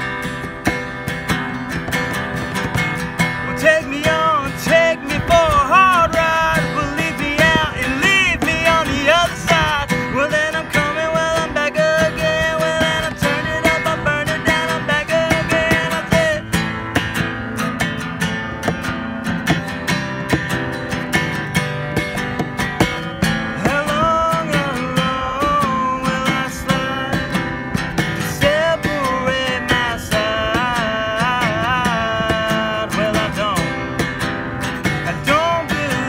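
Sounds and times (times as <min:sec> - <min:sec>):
acoustic guitar strumming: 0:00.0 - 0:36.0
man singing: 0:02.0 - 0:17.2, 0:22.8 - 0:36.0.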